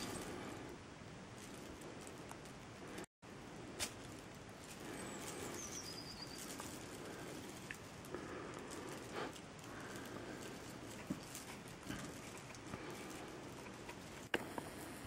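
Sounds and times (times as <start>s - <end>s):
steady hiss: 0.0s - 15.0s
thin high chirp: 5.5s - 6.5s.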